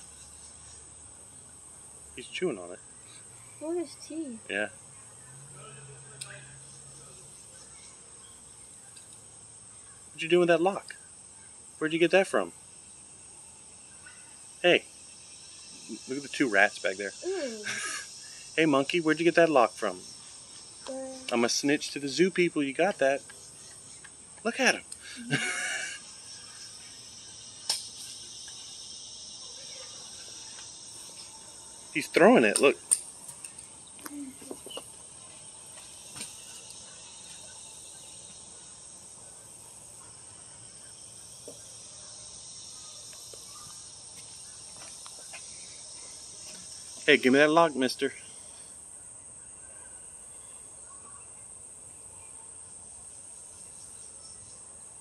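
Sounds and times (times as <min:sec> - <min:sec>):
faint outdoor background noise: 0:00.0 - 0:55.0
insects chorus: 0:00.0 - 0:55.0
person's voice: 0:17.2 - 0:17.7
sharp click: 0:27.7 - 0:28.0.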